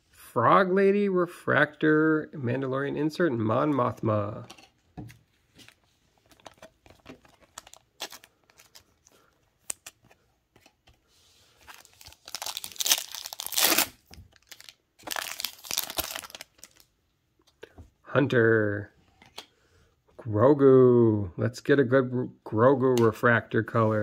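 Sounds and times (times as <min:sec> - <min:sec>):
plastic wrapper crinkling tear: 0:06.2 - 0:10.2, 0:11.7 - 0:17.0.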